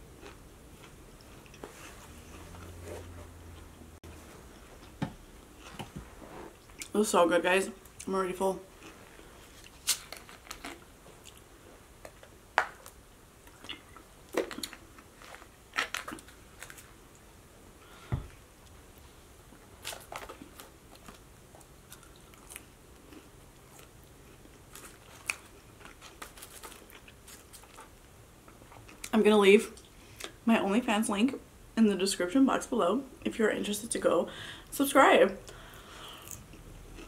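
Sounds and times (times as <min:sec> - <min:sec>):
chewing with crunchy bites: 0:19.8 - 0:27.9, 0:36.2 - 0:37.0.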